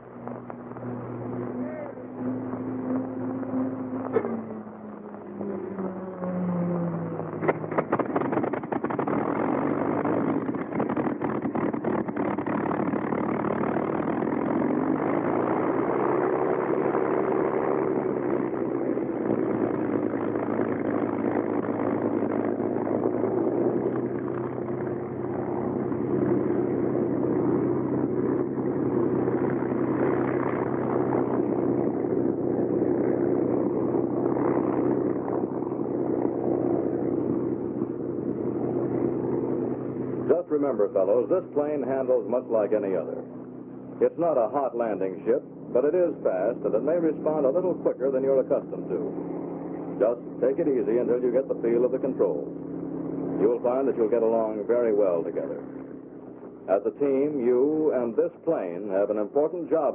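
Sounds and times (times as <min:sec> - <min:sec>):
aircraft engine starting: 0:00.0 - 0:59.9.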